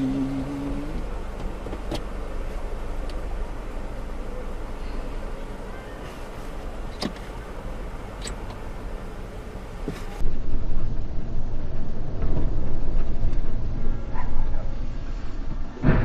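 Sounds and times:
car engine idling: 0.0s - 10.2s
engine and road noise: 0.0s - 16.0s.

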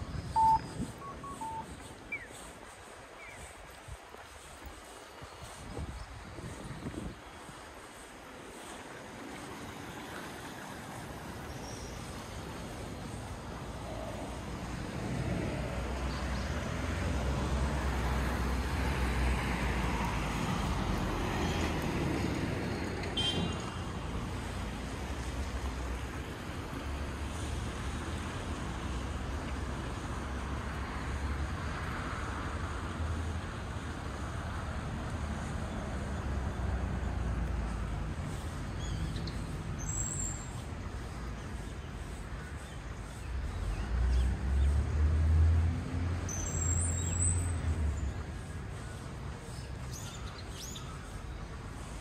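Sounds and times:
faint high chirps: 0.0s - 2.3s
road traffic rumble: 0.0s - 52.0s
vehicle passing: 13.8s - 23.1s, 43.9s - 48.4s.

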